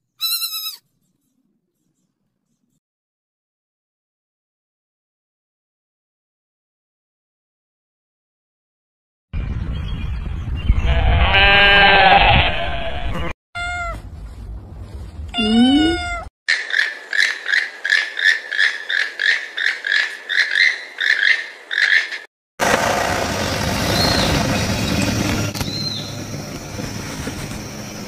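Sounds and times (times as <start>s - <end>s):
short high-pitched calls: 0.2s - 0.8s
sheep bleating: 10.9s - 13.4s
cat meowing: 13.6s - 14.0s, 15.3s - 16.3s.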